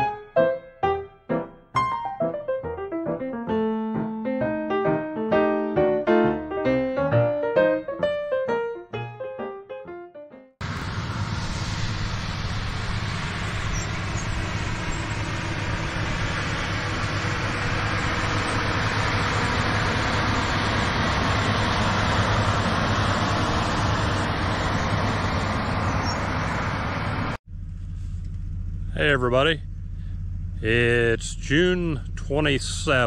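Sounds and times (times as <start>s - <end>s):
vehicle engine running: 10.6s - 33.0s.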